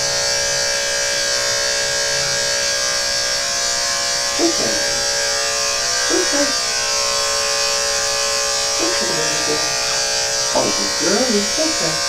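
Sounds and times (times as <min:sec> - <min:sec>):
electric clippers humming: 0:00.0 - 0:12.0
short voice sound: 0:06.1 - 0:06.6.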